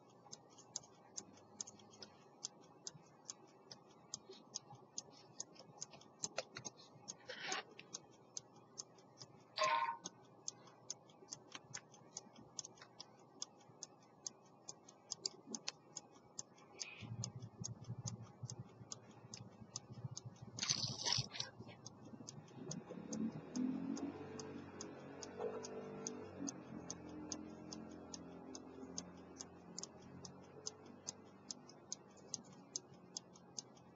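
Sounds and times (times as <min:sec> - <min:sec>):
pocket watch ticking: 0:00.0 - 0:33.9.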